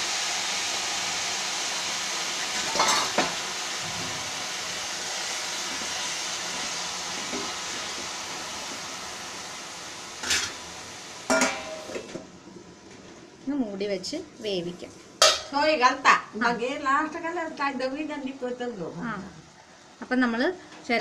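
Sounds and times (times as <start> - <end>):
water sizzling in hot pot: 0.0 - 21.0
pot lid clanking: 2.6 - 3.4, 10.2 - 10.6, 11.3 - 12.2, 15.2 - 15.6
metal ladle clinking on pot: 11.3 - 11.9.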